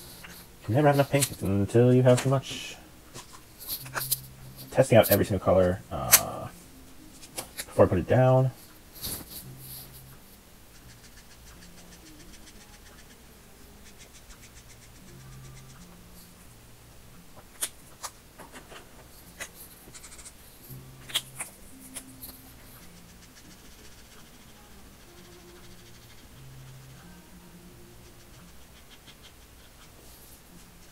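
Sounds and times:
marker scratching on paper: 0:03.2 - 0:05.4, 0:09.0 - 0:16.4, 0:17.6 - 0:27.2, 0:27.9 - 0:30.9.

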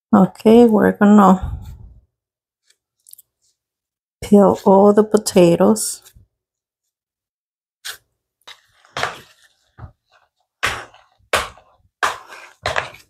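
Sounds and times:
potato masher thudding: 0:10.6 - 0:13.0.

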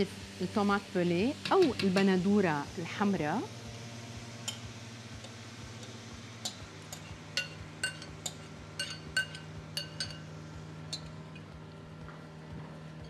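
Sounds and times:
spoon clinking against bowl: 0:06.5 - 0:10.3.

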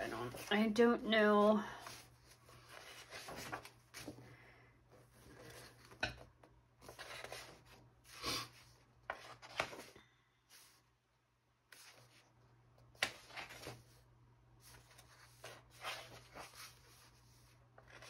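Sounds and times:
catalog pages being turned: 0:00.0 - 0:00.8, 0:01.8 - 0:04.2, 0:06.8 - 0:10.8, 0:11.7 - 0:12.3, 0:12.9 - 0:14.0, 0:14.6 - 0:18.0.

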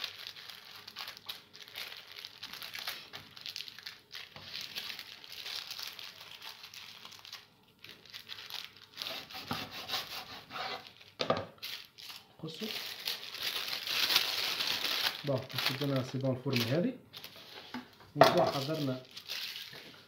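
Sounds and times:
paper crinkling and rustling: 0:00.0 - 0:09.4, 0:10.8 - 0:20.0
knife cutting paper on board: 0:09.0 - 0:10.8.

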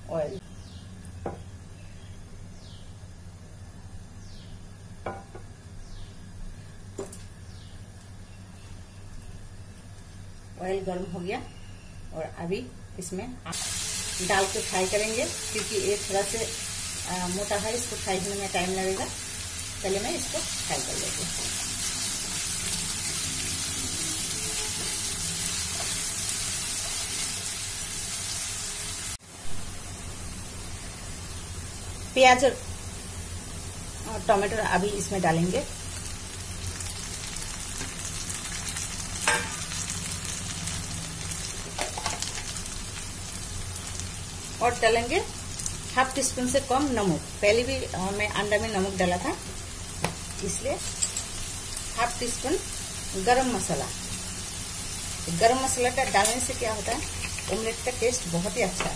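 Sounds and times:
low kitchen hum: 0:00.0 - 0:58.9
vegetables sizzling in hot oil: 0:13.5 - 0:58.9.

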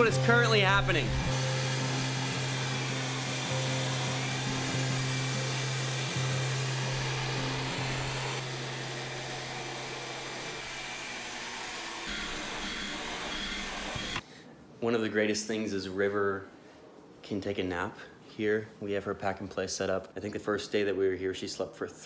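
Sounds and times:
vacuum cleaner running: 0:00.0 - 0:14.2.

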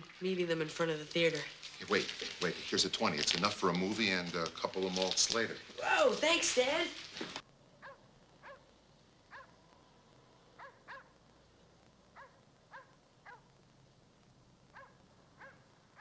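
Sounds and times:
dog barking faintly: 0:07.8 - 0:08.7, 0:09.3 - 0:09.6, 0:10.6 - 0:11.2, 0:12.1 - 0:13.5, 0:14.7 - 0:16.0.

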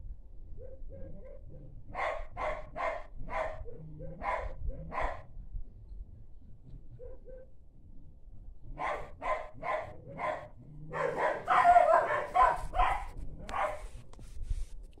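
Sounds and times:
dog barking: 0:00.6 - 0:05.3, 0:07.0 - 0:07.5, 0:08.8 - 0:13.9.

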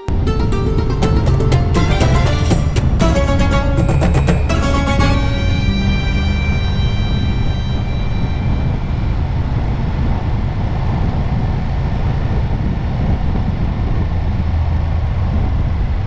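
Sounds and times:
wind noise: 0:00.1 - 0:16.0.

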